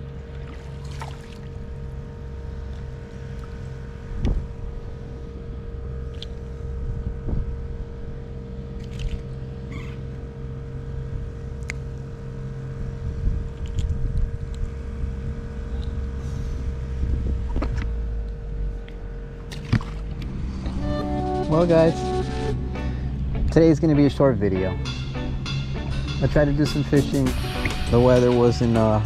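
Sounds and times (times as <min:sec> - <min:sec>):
wind rumble on microphone: 0:00.0 - 0:09.6, 0:10.7 - 0:20.8
motor humming: 0:00.0 - 0:26.2.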